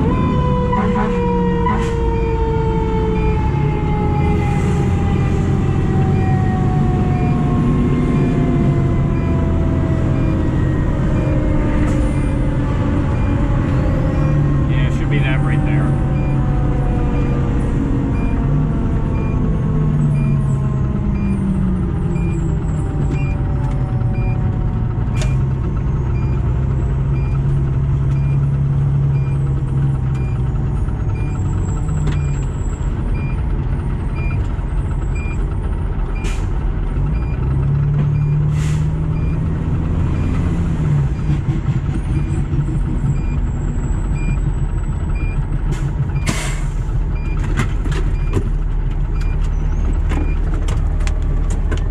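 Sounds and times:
mechanical siren winding down: 0.0s - 25.5s
fire engine running: 0.0s - 51.9s.

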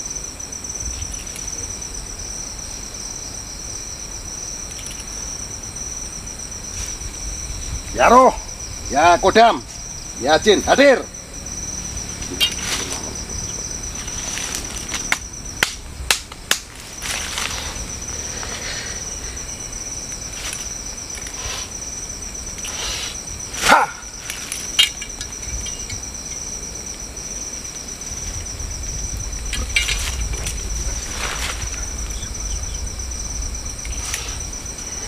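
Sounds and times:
crickets trilling: 0.0s - 35.0s
rustling in dry leaves: 4.6s - 8.0s, 11.4s - 35.0s.

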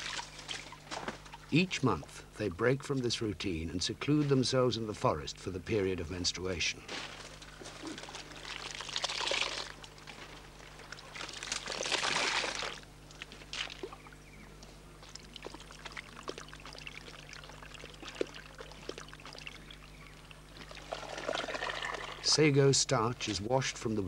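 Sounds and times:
water splashing into strainer: 0.0s - 1.4s, 7.8s - 14.1s, 15.0s - 19.6s, 20.6s - 22.3s
water trickling: 0.0s - 2.0s, 7.6s - 14.3s, 14.9s - 22.4s
small wet clicks: 7.4s - 20.9s.

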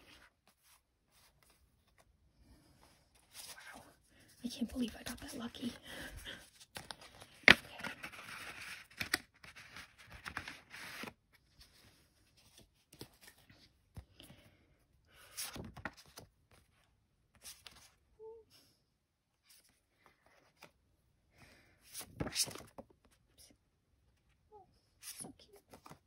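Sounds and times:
paper rustling and scraping: 6.5s - 13.7s.

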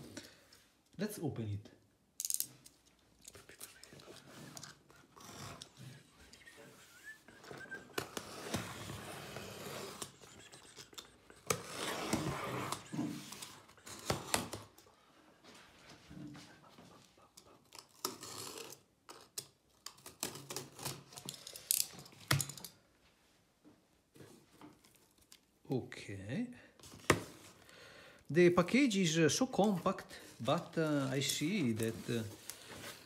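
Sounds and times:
utility knife scraping tape: 7.9s - 14.6s
cardboard being handled: 29.6s - 33.0s.

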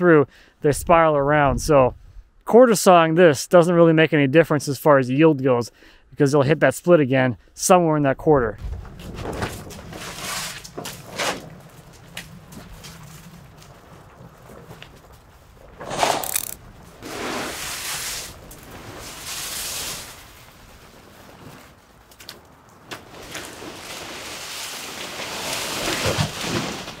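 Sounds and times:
tarp rustling and flapping: 8.6s - 27.0s
mechanical rattle: 15.8s - 16.6s.

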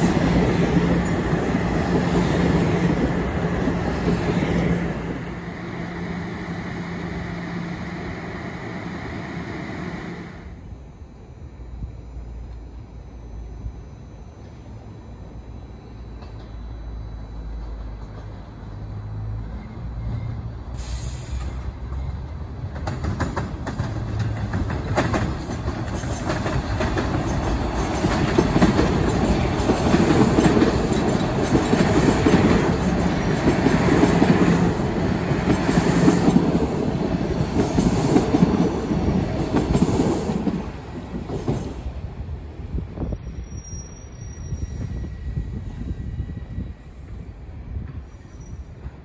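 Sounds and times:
train wheels clacking on rails: 21.4s - 41.9s
high-pitched wheel squeal: 43.2s - 47.0s.

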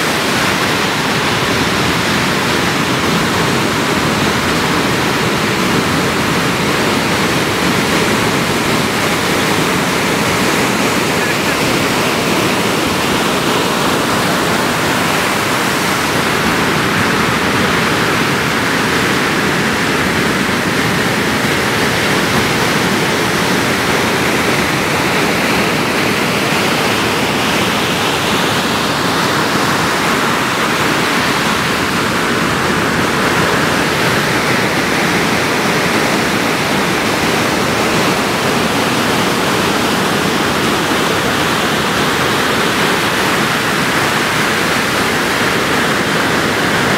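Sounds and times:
ocean surf rushing: 0.0s - 46.9s.

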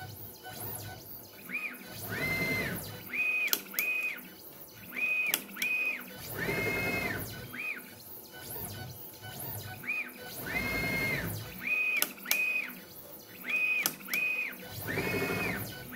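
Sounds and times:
stepper motors whining: 0.0s - 15.9s
sharp clicks: 11.9s - 12.6s, 13.5s - 15.6s.

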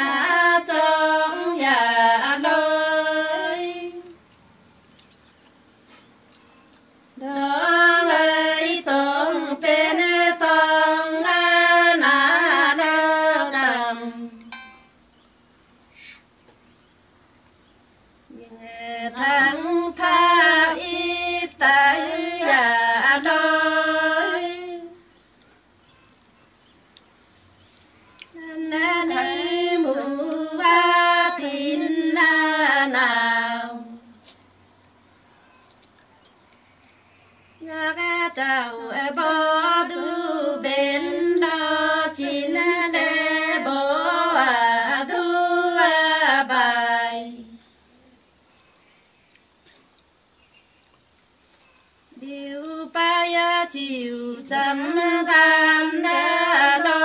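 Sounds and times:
woman singing unaccompanied: 0.0s - 4.2s, 7.2s - 14.6s, 18.3s - 25.2s, 28.3s - 34.2s, 37.6s - 47.8s, 52.1s - 57.0s.

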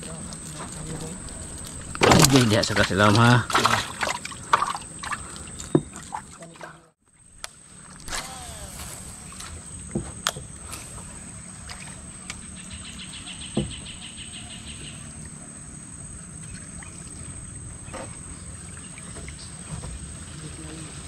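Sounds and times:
steady low rumble: 0.0s - 3.2s
knocks on wooden boat: 13.5s - 13.9s.

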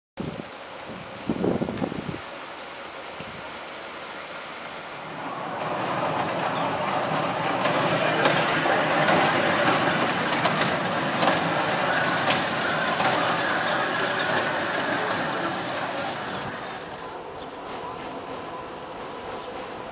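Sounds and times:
ride train rolling on track: 4.8s - 19.9s.

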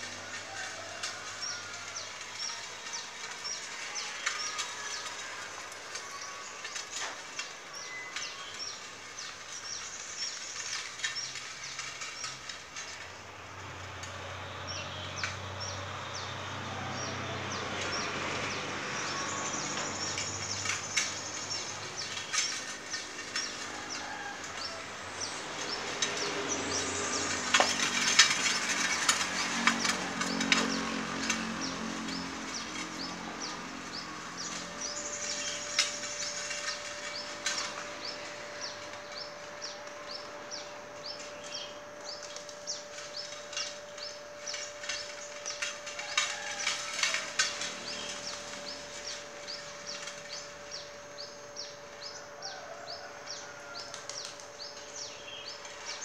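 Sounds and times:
wheels crackling over grit and twigs: 0.0s - 56.0s
low motor hum: 1.2s - 56.0s
bird chirping: 29.8s - 56.0s.

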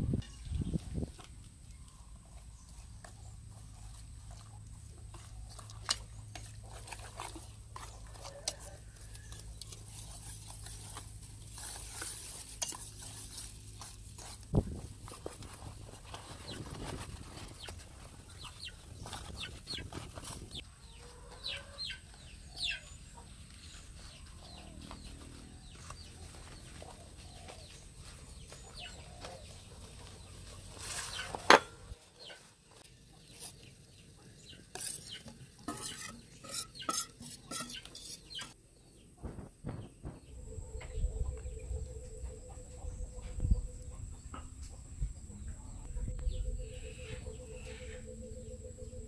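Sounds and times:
leaves rustling and crinkling: 0.0s - 21.2s, 23.6s - 34.0s
chickens clucking: 15.4s - 38.6s.

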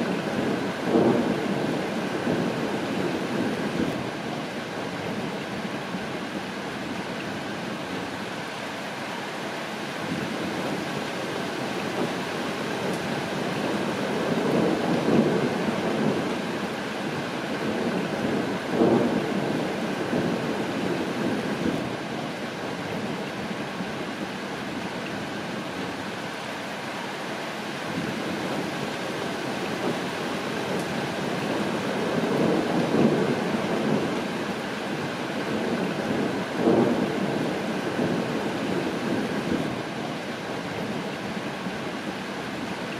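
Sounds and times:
low rumble of thunder: 0.0s - 4.2s, 11.7s - 24.2s, 27.9s - 41.4s
steady rain falling: 0.0s - 42.9s.

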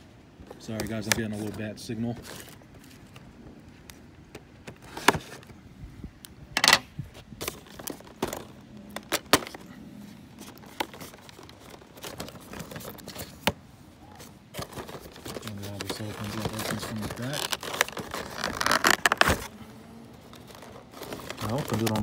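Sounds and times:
cardboard box being opened: 10.3s - 19.6s, 20.2s - 22.0s.

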